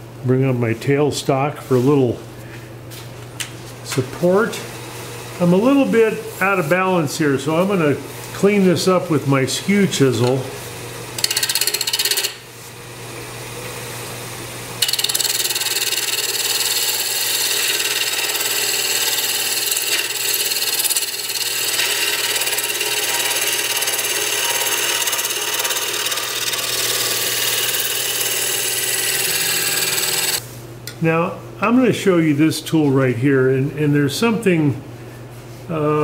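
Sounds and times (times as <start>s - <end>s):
lathe motor hum: 14.8s - 30.4s
chisel cutting wood shavings hiss: 15.0s - 30.4s.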